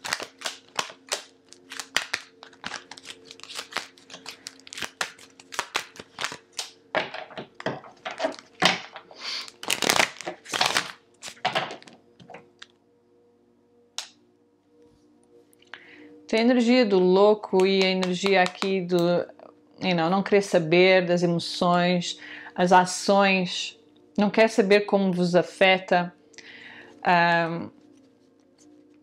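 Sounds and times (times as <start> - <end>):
cards being shuffled: 0.0 - 12.0, 17.6 - 18.8.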